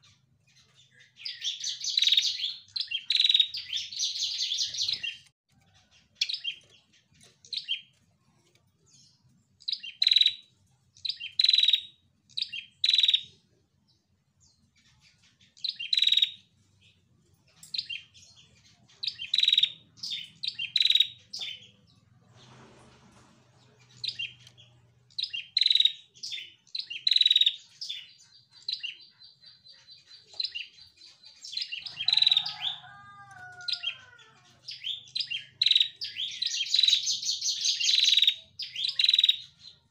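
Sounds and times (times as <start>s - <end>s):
bird chirping: 0.0s - 39.9s
bird trilling: 1.2s - 5.3s, 11.1s - 13.3s, 15.7s - 16.4s, 19.1s - 21.6s, 25.2s - 30.8s, 31.4s - 39.5s.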